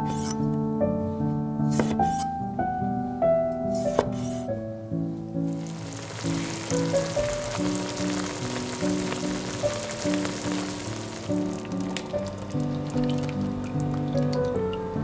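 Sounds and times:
soft piano music: 0:00.0 - 0:15.0
vegetables sizzling in a frying pan: 0:05.5 - 0:14.4.

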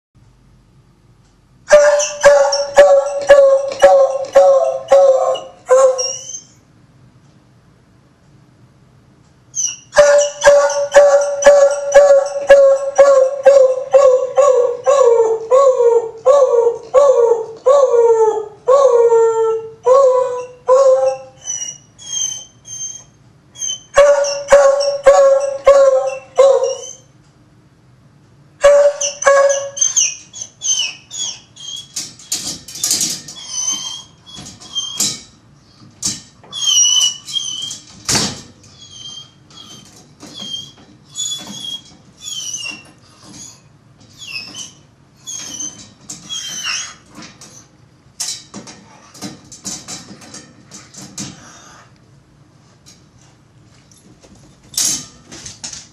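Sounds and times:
dog calling: 0:01.7 - 0:06.6, 0:09.6 - 0:23.0, 0:23.6 - 0:27.1, 0:28.6 - 0:31.9
high-pitched squeaks: 0:28.9 - 0:35.3, 0:38.7 - 0:47.0.

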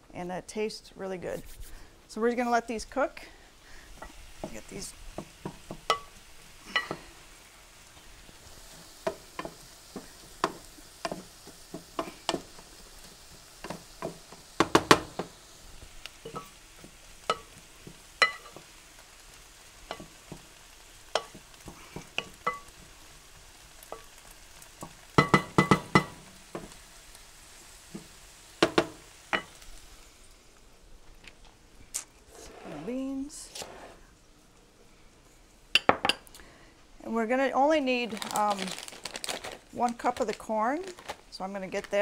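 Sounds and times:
vegetables sizzling: 0:00.0 - 0:42.0.

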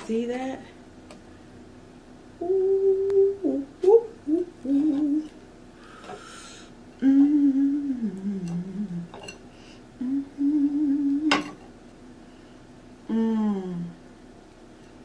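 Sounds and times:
woman humming: 0:02.4 - 0:05.4, 0:07.0 - 0:09.3, 0:10.0 - 0:11.5, 0:13.0 - 0:14.1.

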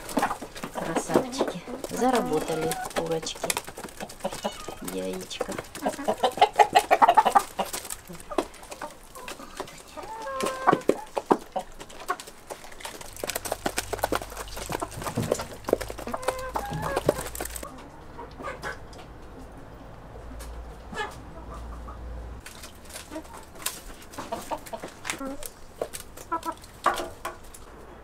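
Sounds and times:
beaks pecking: 0:00.0 - 0:17.8
hens clucking: 0:00.0 - 0:27.8.

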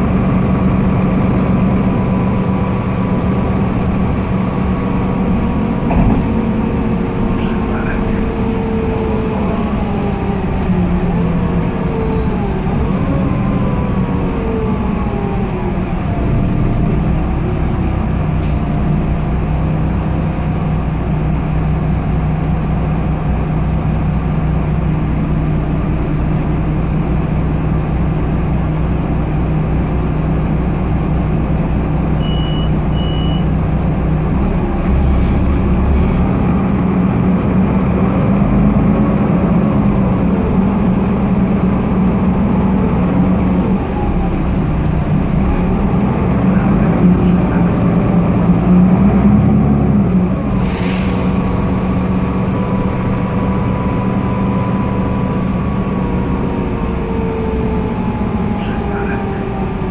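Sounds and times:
bus engine humming: 0:00.0 - 0:59.9
short high beeps: 0:32.2 - 0:33.5.

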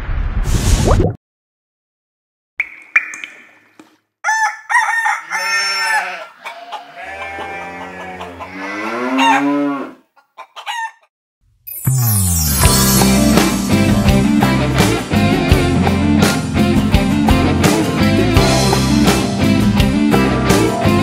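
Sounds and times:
rooster crowing: 0:04.2 - 0:11.1
chickens clucking: 0:04.7 - 0:09.5, 0:10.1 - 0:11.1
guitar music: 0:12.6 - 0:21.0.

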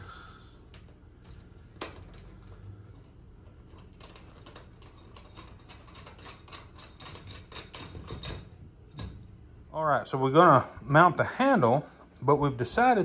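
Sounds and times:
metal caster clicking and rattling: 0:00.7 - 0:09.3.

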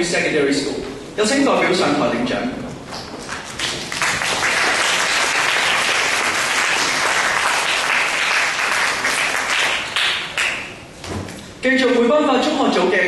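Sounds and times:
audience applauding: 0:03.2 - 0:10.8.

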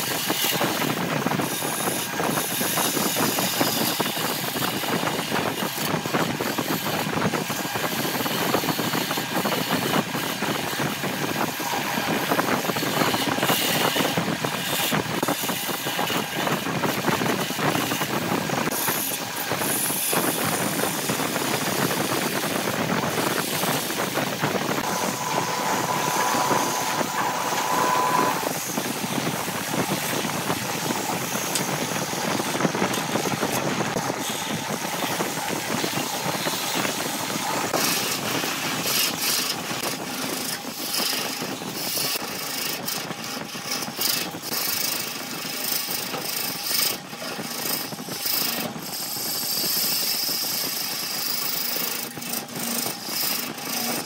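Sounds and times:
lathe tool shaving wood: 0:00.0 - 0:54.0
wood lathe running: 0:00.1 - 0:04.9, 0:07.5 - 0:54.0
steady whine: 0:20.2 - 0:37.8.

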